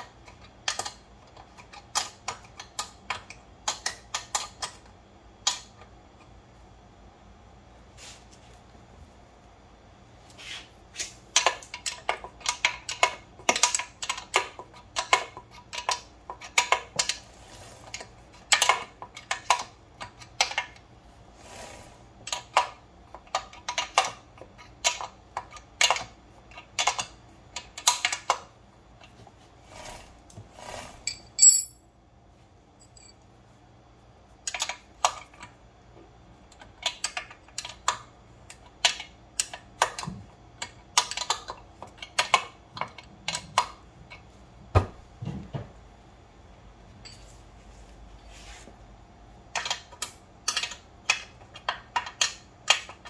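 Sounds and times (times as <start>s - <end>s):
metallic clinks of hand tools: 31.1s - 31.8s.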